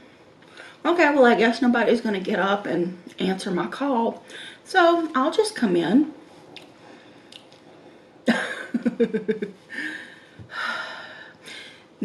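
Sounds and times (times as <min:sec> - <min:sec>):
woman chuckling: 0:08.3 - 0:10.2.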